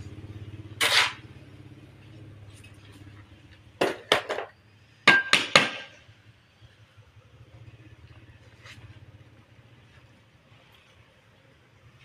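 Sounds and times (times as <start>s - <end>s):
low steady hum: 0.0s - 12.0s
scrape on tiles: 0.8s - 1.2s.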